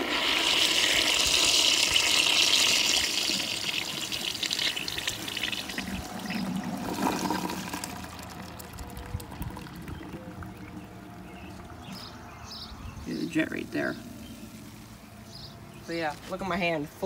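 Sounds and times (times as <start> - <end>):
toilet flushing: 0.0 - 11.5.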